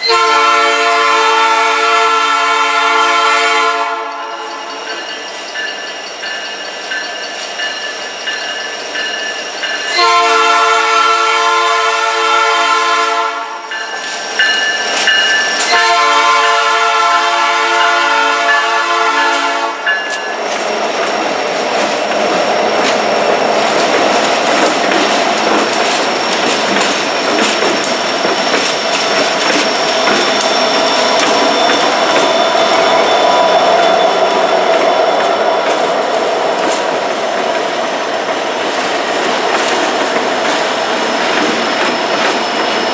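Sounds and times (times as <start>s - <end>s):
train air horn blasts: 0.0s - 4.9s, 9.9s - 13.7s, 15.6s - 19.9s
diesel locomotive engines running: 1.3s - 42.9s
train wheels clattering over rails: 13.6s - 17.1s, 18.2s - 42.9s.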